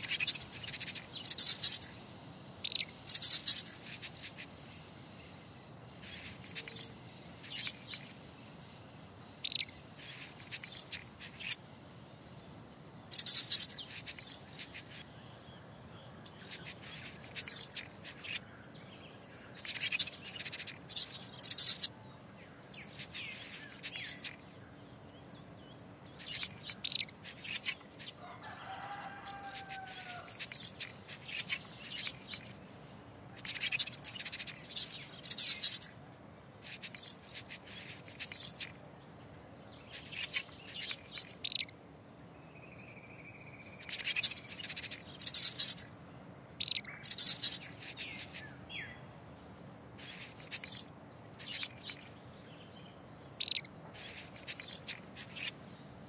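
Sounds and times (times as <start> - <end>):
songbirds chirping: 0.0 - 56.0
lower arching bird call: 28.2 - 30.4.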